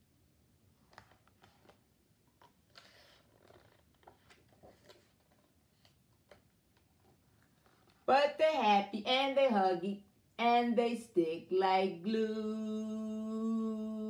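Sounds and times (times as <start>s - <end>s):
book pages turning: 0.8s - 8.1s.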